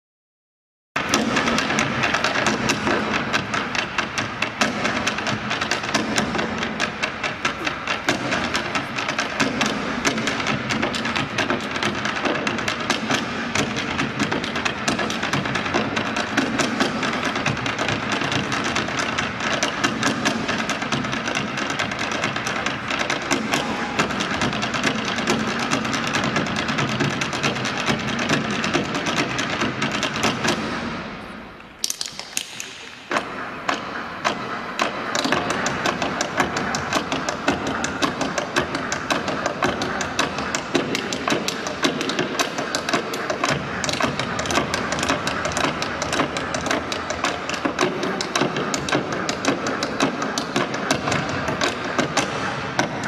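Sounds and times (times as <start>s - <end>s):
hard shoes tapping on stage: 1.0s - 30.8s, 31.8s - 53.0s.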